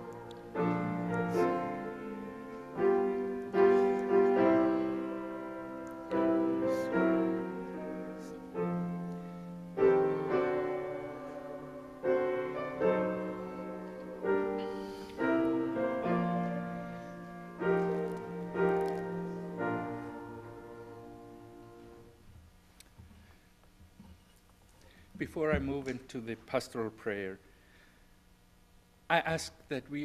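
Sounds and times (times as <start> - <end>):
grand piano chords: 0.0 - 22.3.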